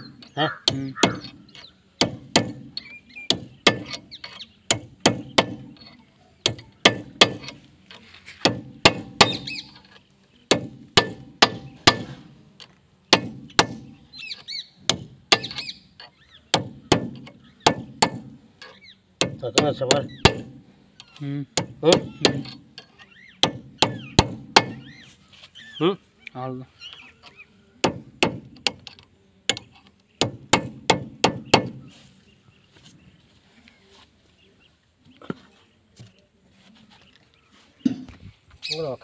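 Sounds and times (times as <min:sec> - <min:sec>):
hammer striking metal: 0:10.5 - 0:12.2, 0:19.2 - 0:20.6.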